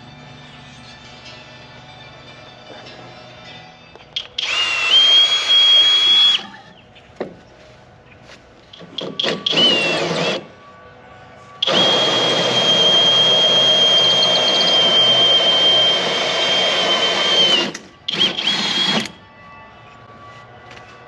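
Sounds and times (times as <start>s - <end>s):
drill hole saw cutting siding: 4.4s - 6.4s, 8.9s - 10.4s, 11.6s - 19.2s.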